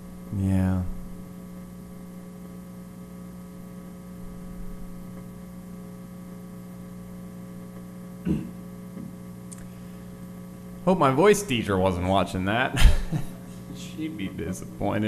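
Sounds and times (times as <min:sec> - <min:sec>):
electrical mains hum: 0:00.0 - 0:15.0.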